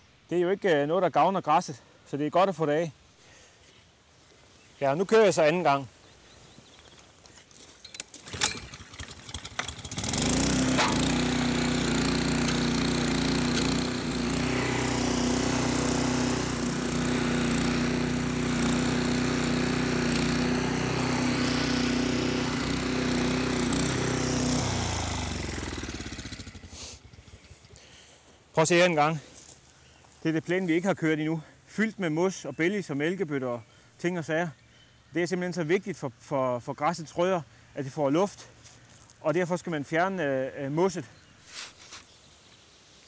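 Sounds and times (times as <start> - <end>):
pull-start cord rattling: 8.0 - 14.1
lawn scarifier engine running: 8.3 - 28.3.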